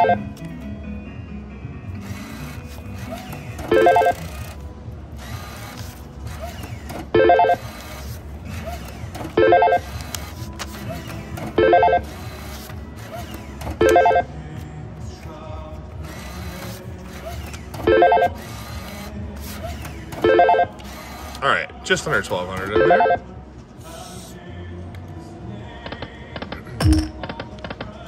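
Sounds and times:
casino background din: 0:00.0 - 0:00.5, 0:02.9 - 0:04.6, 0:07.1 - 0:07.6, 0:09.2 - 0:12.1, 0:13.7 - 0:28.0
bill acceptor taking bills: 0:02.0 - 0:14.6, 0:16.2 - 0:23.2.

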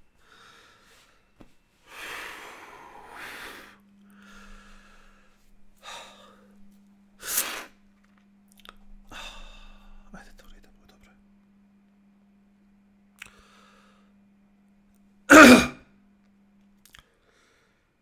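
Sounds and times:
man breathing heavily: 0:00.2 - 0:06.6, 0:09.1 - 0:10.1
sharp intake of breath: 0:01.9 - 0:06.5, 0:07.2 - 0:07.8.

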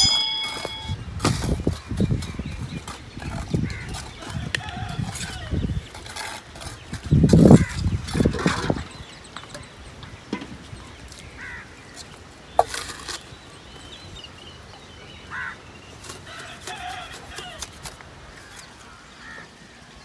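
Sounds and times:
trowel knocking and scraping bricks: 0:00.0 - 0:09.7, 0:12.0 - 0:13.4.

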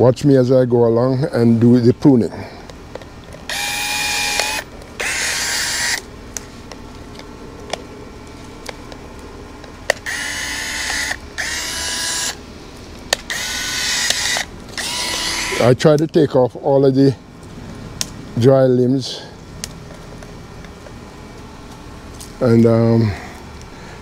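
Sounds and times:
power pruning tool whirring: 0:02.9 - 0:09.0, 0:09.6 - 0:12.4, 0:13.1 - 0:16.0.

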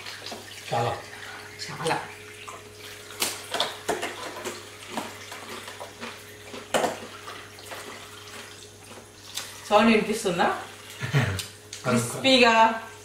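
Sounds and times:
water trickling from a tap: 0:00.0 - 0:03.2.

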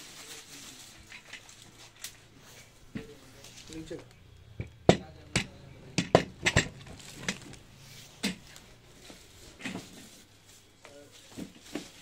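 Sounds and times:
chair mechanism knocking: 0:04.5 - 0:07.6, 0:08.2 - 0:08.6.

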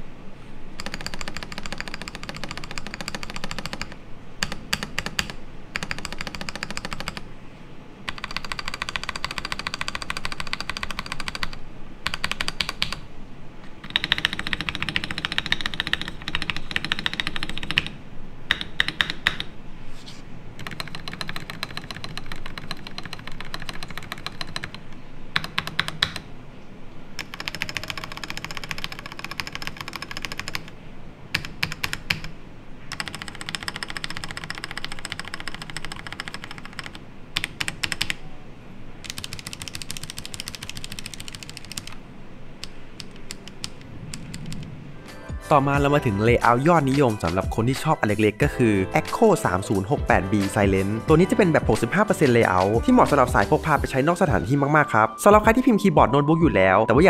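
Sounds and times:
mechanical keyboard typing: 0:00.8 - 0:07.2, 0:08.1 - 0:13.0, 0:13.8 - 0:19.5, 0:20.6 - 0:26.3, 0:27.2 - 0:32.3, 0:32.9 - 0:38.2, 0:39.0 - 0:42.0, 0:42.6 - 0:44.7.

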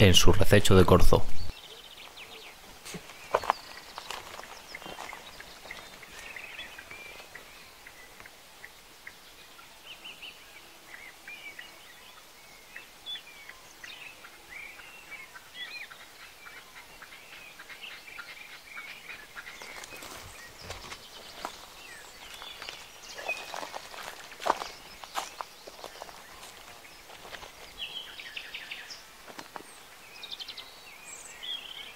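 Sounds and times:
songbirds chirping: 0:00.0 - 0:31.9
footsteps on dry leaves: 0:02.8 - 0:07.3, 0:19.5 - 0:28.0.

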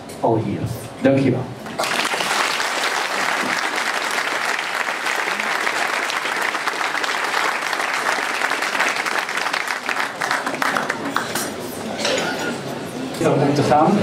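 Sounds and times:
audience applauding: 0:01.7 - 0:11.7.

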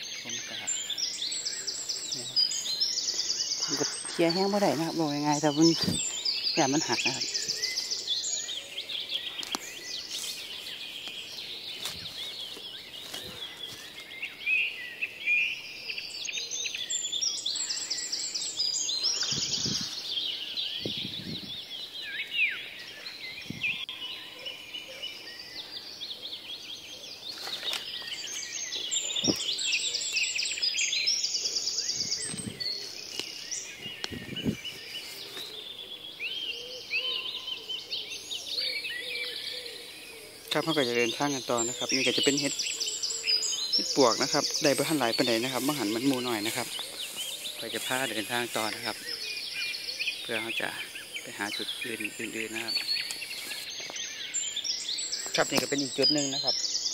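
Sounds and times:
chattering bird trills: 0:00.0 - 0:14.0, 0:16.4 - 0:22.2, 0:36.5 - 0:54.5
forest birds singing: 0:00.0 - 0:56.9.

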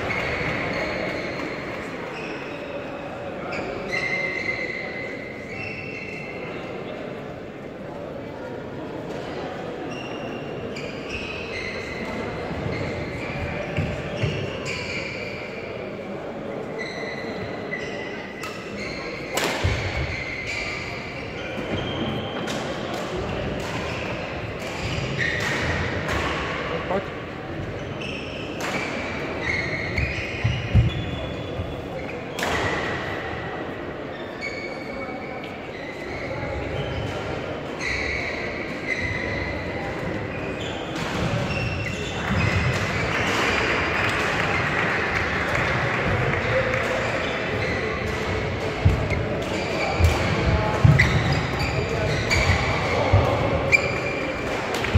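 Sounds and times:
shoes squeaking on floor: 0:00.0 - 0:02.9, 0:03.5 - 0:06.5, 0:09.8 - 0:15.7, 0:16.6 - 0:22.5, 0:23.2 - 0:27.0, 0:27.6 - 0:32.9, 0:34.1 - 0:43.6, 0:46.4 - 0:54.5
racket hitting shuttlecock: 0:19.2 - 0:20.2, 0:22.4 - 0:26.6, 0:32.3 - 0:33.0, 0:46.8 - 0:54.9.

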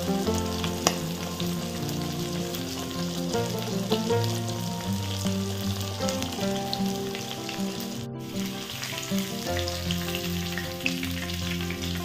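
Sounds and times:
background music with held notes: 0:00.0 - 0:12.0
fish deep-frying in oil: 0:00.0 - 0:12.0.

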